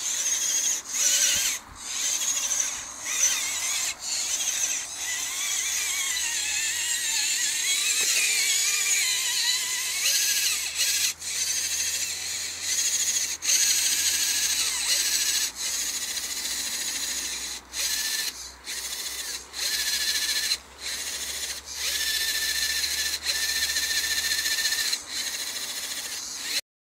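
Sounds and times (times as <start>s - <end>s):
electric motor and gearbox whining: 0.0s - 26.6s.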